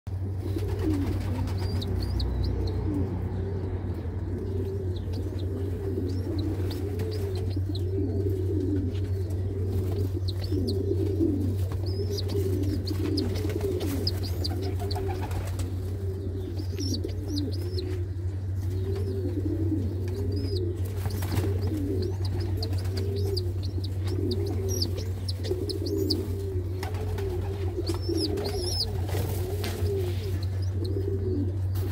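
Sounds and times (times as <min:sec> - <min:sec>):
pigeons cooing: 0:00.1 - 0:31.9
steady low hum: 0:00.1 - 0:31.9.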